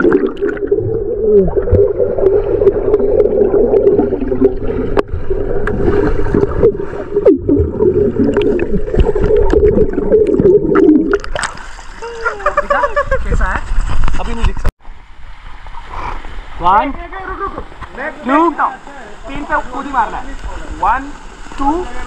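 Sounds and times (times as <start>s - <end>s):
underwater knocks and splashes: 0.0s - 11.9s
bubbling water: 0.0s - 12.3s.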